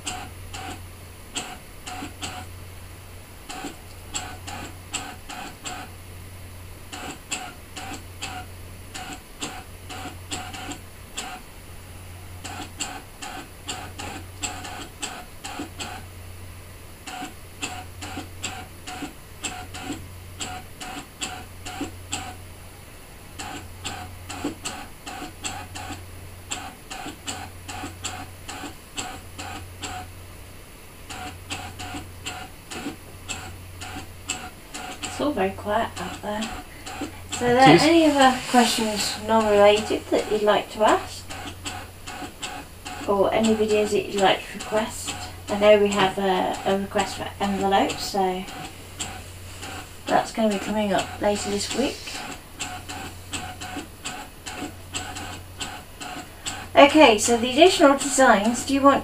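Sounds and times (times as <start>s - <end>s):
carriage motor rapid ticking: 0.0s - 2.6s, 3.4s - 6.0s, 6.9s - 11.5s, 12.4s - 16.1s, 17.0s - 22.5s, 23.3s - 30.1s, 31.0s - 59.0s.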